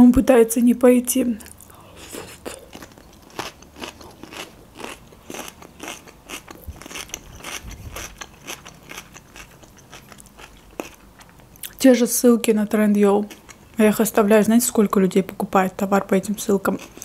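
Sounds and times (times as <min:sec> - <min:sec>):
person chewing food: 0:01.4 - 0:11.8, 0:13.0 - 0:13.8, 0:16.7 - 0:17.0.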